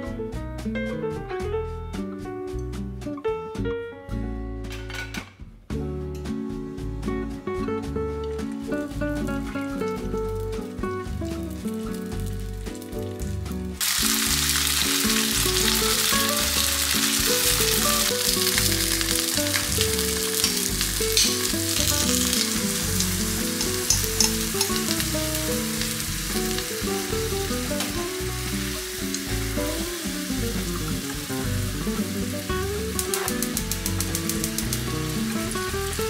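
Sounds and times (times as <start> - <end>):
background music: 0.0 - 36.0
tofu sizzling in a frying pan: 8.3 - 36.0.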